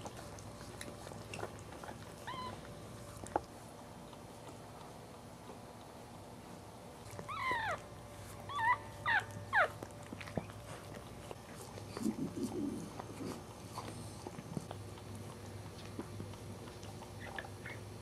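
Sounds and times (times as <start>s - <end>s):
puppy squealing: 2.2s - 2.6s, 7.3s - 7.8s, 8.5s - 9.8s
puppy grunting: 8.5s - 15.2s.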